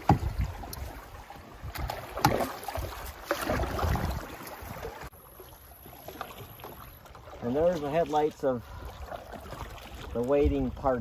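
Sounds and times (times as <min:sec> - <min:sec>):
knocks on canoe: 0:00.0 - 0:00.5
water splashing around paddle: 0:00.0 - 0:11.0.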